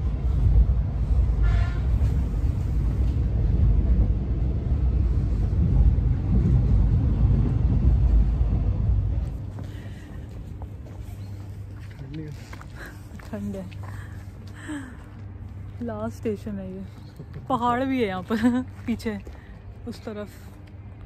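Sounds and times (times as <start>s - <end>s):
outdoor platform ambience: 0.0s - 21.0s
train rumbling inside carriage: 0.0s - 21.0s.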